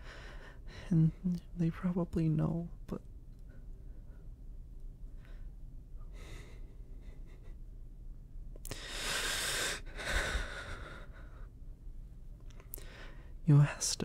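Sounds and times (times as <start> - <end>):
person breathing: 0.0 - 1.0, 5.1 - 7.6, 8.6 - 11.6, 12.7 - 13.4.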